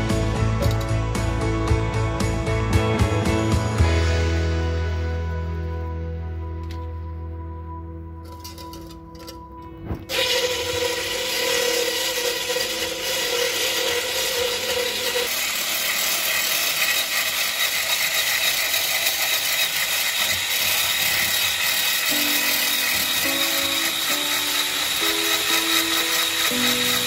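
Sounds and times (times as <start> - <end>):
electric hand blender whisking: 10.1 - 27.0.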